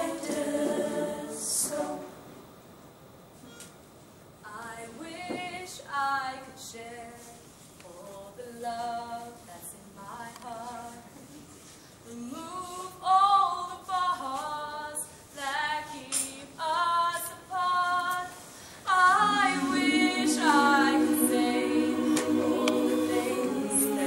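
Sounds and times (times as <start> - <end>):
vocal group holding low notes: 0.0 - 2.3, 18.9 - 24.0.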